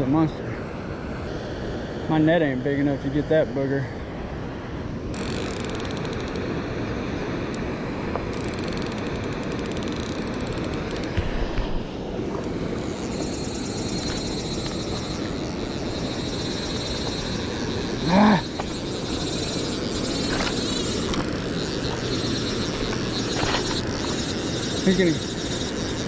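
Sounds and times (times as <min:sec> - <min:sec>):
fishing reel drag clicking: 0:05.1 - 0:06.5, 0:08.2 - 0:11.2, 0:12.4 - 0:26.0
steady rushing noise: 0:06.3 - 0:26.0.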